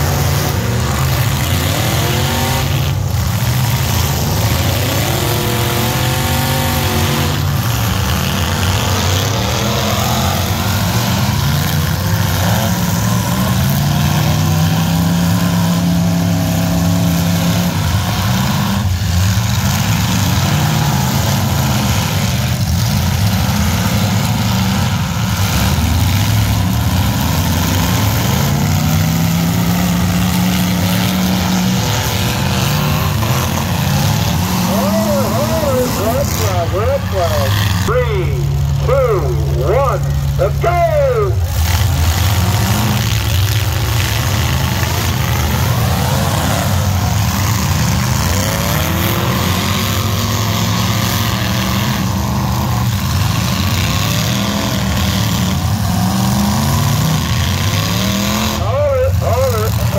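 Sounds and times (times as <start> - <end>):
truck engines revving: 0.0 - 59.9.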